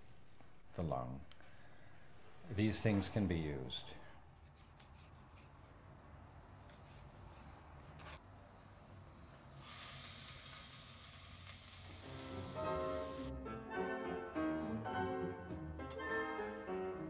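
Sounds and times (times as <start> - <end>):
meat sizzling in a skillet: 9.6 - 13.3.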